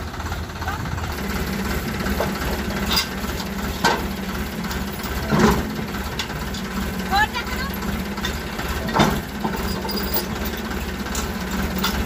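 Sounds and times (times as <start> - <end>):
tractor diesel engine idling: 0.0 - 12.0
sharp metallic clanks: 2.1 - 6.8, 7.4 - 12.0.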